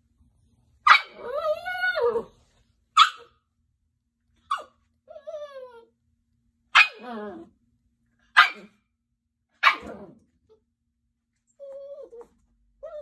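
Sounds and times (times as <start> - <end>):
puppy barking: 0.8 - 1.4, 2.9 - 3.4, 4.5 - 4.8, 6.7 - 7.4, 8.3 - 8.8, 9.6 - 10.2
puppy whining: 0.9 - 2.5, 4.5 - 6.0, 11.4 - 13.0.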